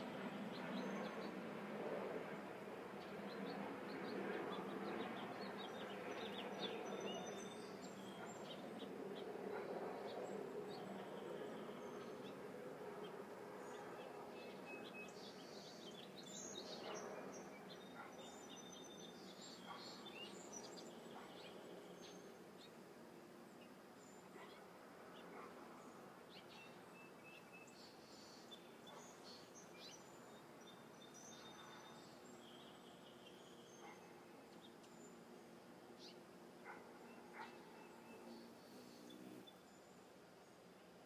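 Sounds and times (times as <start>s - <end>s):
hummingbird wings humming: 10.0s - 40.6s.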